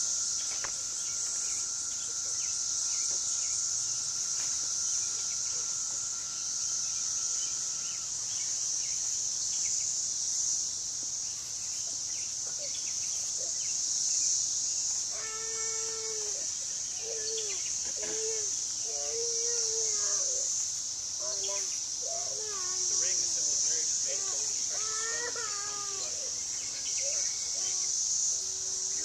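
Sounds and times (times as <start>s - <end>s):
insects singing: 0.0s - 29.0s
thin whistling tone: 0.1s - 9.0s.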